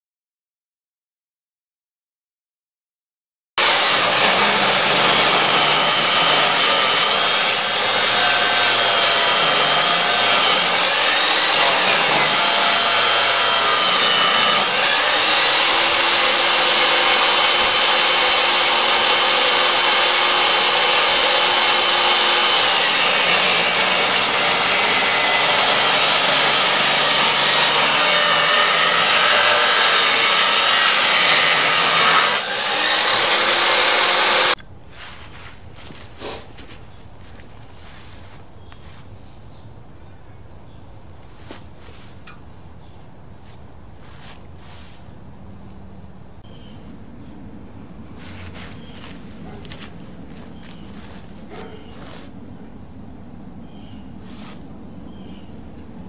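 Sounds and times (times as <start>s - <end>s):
table saw cutting wood: 3.6s - 34.6s.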